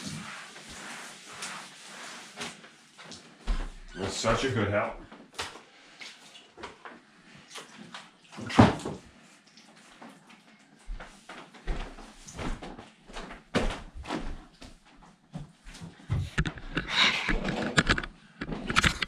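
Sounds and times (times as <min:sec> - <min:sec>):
household handling knocks and bumps: 0:12.4 - 0:14.4.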